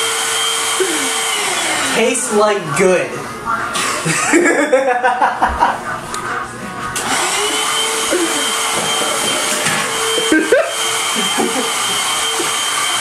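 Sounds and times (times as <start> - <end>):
stick vacuum cleaner whining: 0.0 - 2.8, 6.2 - 13.0.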